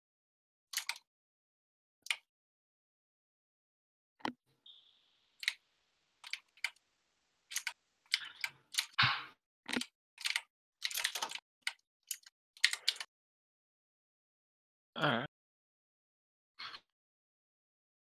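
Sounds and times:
keyboard typing: 0.8s - 1.0s, 5.4s - 5.6s, 6.2s - 6.8s, 7.5s - 9.0s, 9.7s - 13.1s.

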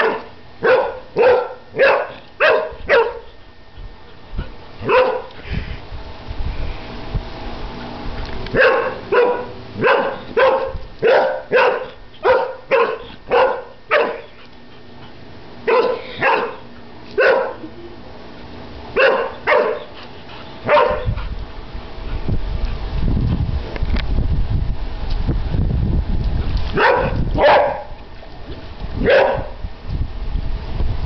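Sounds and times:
dog barking: 0.0s - 3.3s, 4.8s - 5.3s, 8.6s - 14.3s, 15.7s - 16.6s, 17.2s - 17.6s, 19.0s - 19.9s, 20.7s - 21.1s, 26.8s - 28.0s, 29.0s - 29.6s.

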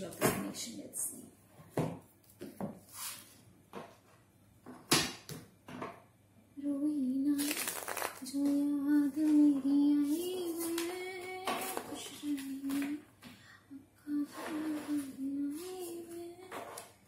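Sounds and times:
woman singing slow melody: 6.6s - 16.8s.

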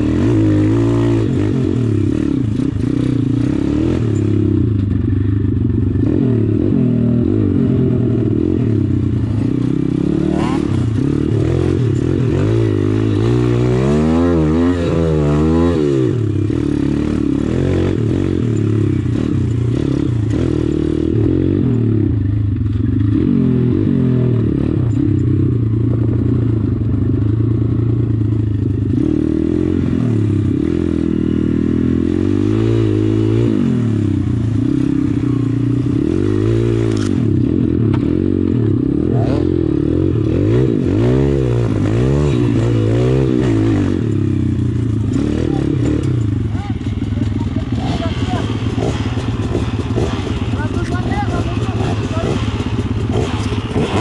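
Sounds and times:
pit bike engine revving: 0.0s - 54.0s.

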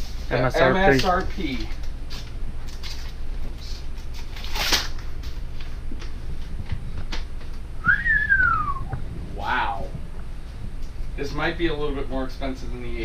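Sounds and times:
paper rustling: 0.9s - 6.6s
person whistling sliding note: 7.8s - 8.9s.

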